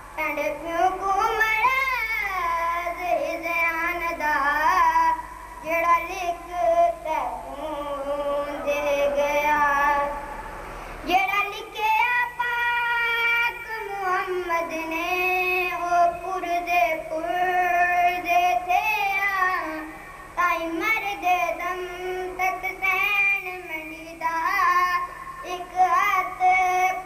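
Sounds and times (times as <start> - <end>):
boy singing into a microphone: 0.0 - 10.4, 11.0 - 27.0.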